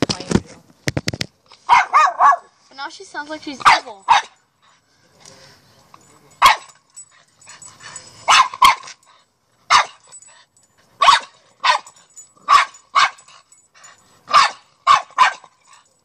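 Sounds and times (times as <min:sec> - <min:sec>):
young dog barking: 0:01.7 - 0:02.6, 0:03.6 - 0:04.4, 0:06.4 - 0:06.8, 0:08.3 - 0:09.0, 0:09.7 - 0:10.0, 0:11.0 - 0:13.3, 0:14.3 - 0:15.6.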